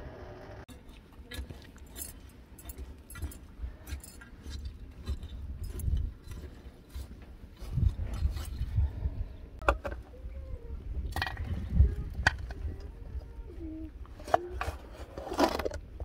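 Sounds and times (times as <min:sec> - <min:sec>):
low rumble: 0:05.0 - 0:14.0.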